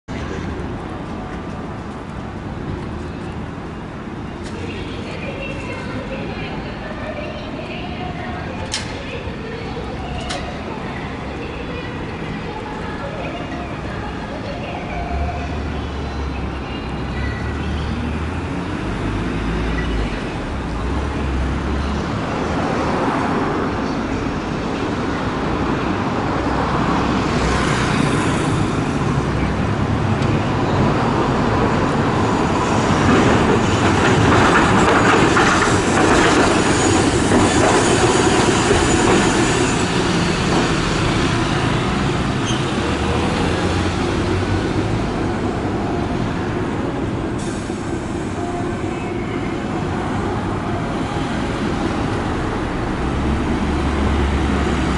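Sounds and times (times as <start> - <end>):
road traffic: 0.0 - 54.9
streetcar wheels on rails: 0.1 - 54.9.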